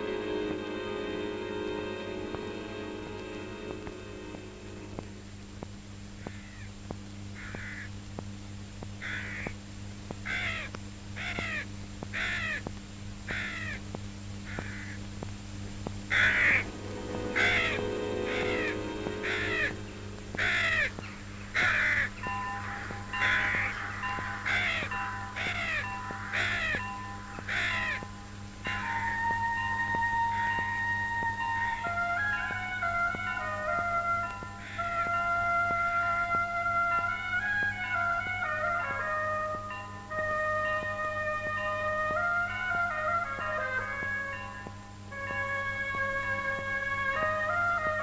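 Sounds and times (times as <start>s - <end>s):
held musical tones: 0.0s - 6.4s, 15.5s - 48.0s
low hum: 0.0s - 9.0s, 12.8s - 32.2s
crows cawing: 6.2s - 6.7s, 7.4s - 8.0s, 9.0s - 9.6s, 10.2s - 12.7s, 13.3s - 13.9s, 14.5s - 15.0s, 16.1s - 26.8s, 27.4s - 28.1s, 34.6s - 36.4s.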